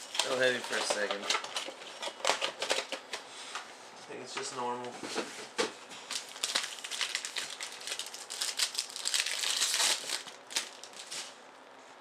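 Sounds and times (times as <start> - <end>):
foil wrapper crinkling: 0.0 - 3.0, 6.0 - 11.4.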